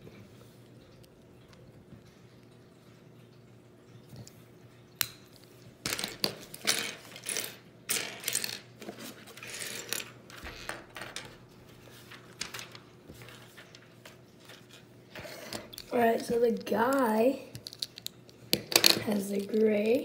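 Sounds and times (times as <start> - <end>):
plastic bricks clattering on table: 5.8 - 11.4, 15.5 - 19.7.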